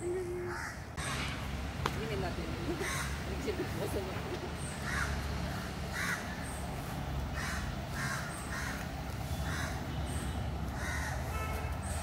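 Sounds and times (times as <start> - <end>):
crows cawing: 0.5 - 1.3, 2.8 - 3.2, 4.8 - 6.6, 7.3 - 11.4.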